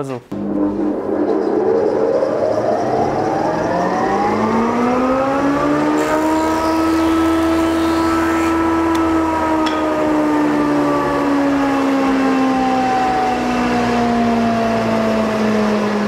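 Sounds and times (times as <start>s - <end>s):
planer motor whining: 3.9s - 16.0s.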